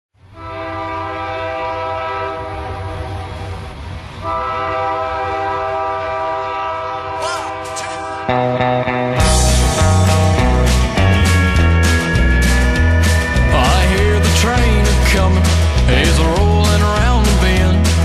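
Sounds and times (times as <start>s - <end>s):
train horn blasts: 0.2s - 8.9s
low rumble of moving train: 0.2s - 18.0s.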